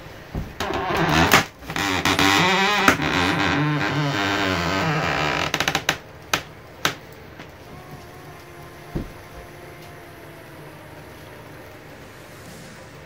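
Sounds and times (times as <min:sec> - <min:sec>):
background music: 0:00.0 - 0:13.0.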